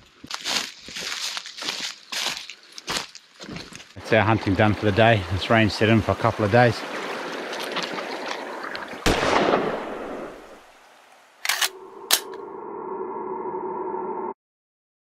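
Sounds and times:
rifle shot echoing: 9.0s - 10.4s
held synth chord: 11.7s - 14.3s.

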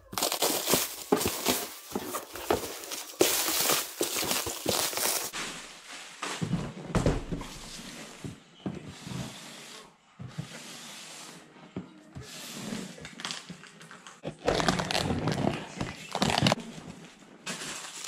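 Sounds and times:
plastic wrap rustling: 0.0s - 6.9s, 13.1s - 18.0s
cardboard box handled: 0.2s - 5.3s.

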